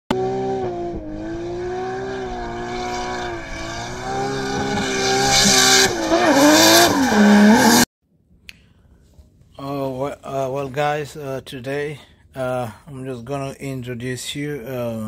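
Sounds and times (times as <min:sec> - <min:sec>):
race car engine running: 0:00.1 - 0:07.8.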